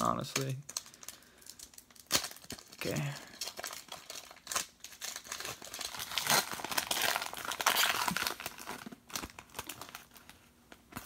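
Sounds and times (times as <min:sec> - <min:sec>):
foil wrapper crinkling: 0:00.0 - 0:11.0.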